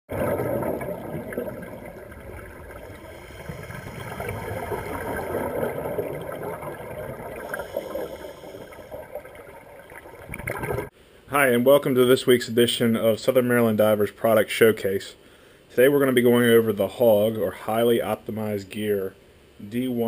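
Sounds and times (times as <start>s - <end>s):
muffled underwater water wash: 0.1s - 10.9s.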